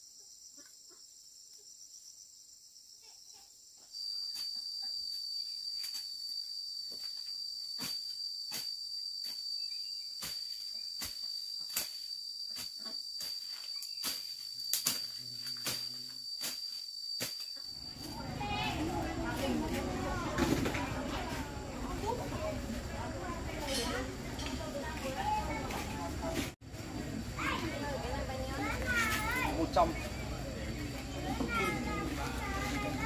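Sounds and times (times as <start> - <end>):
insect high-pitched trill: 0.0 - 19.6.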